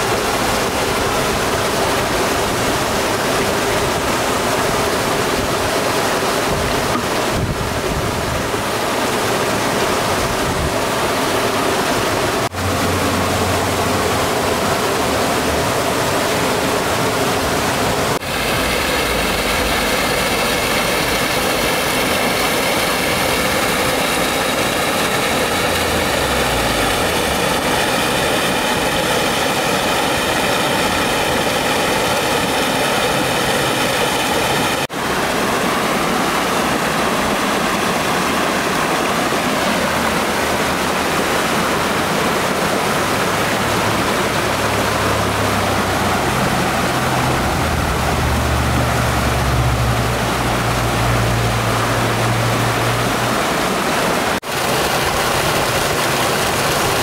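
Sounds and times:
stream rushing over rocks: 0:00.0 - 0:57.0
waterfall splashing into pool: 0:00.0 - 0:57.0.

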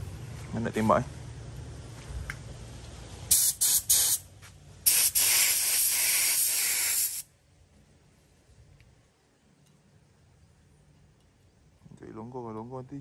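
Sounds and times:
paint spray gun hissing: 0:03.3 - 0:04.2, 0:04.8 - 0:07.3.

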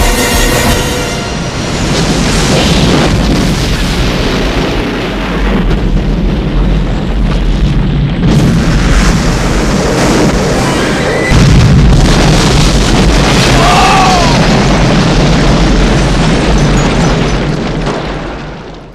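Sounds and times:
film score music: 0:00.0 - 0:02.6
rumbling explosion: 0:00.0 - 0:18.9
roaring fire: 0:01.2 - 0:18.9.

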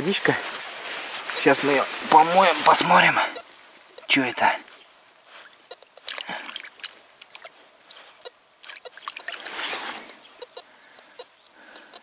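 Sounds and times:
hand splashing in puddle water: 0:05.3 - 0:07.5.

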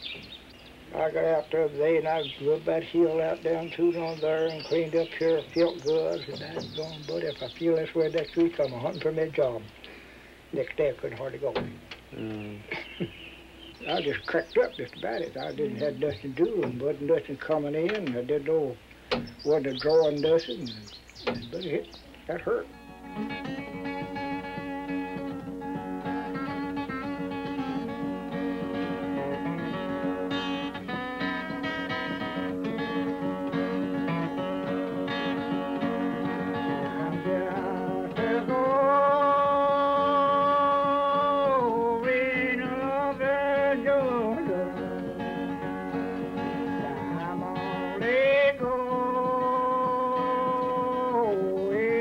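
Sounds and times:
acoustic guitar picking: 0:00.0 - 0:09.8, 0:10.6 - 0:52.0
man singing long bending notes: 0:23.0 - 0:23.7, 0:25.2 - 0:30.6, 0:33.0 - 0:52.0.

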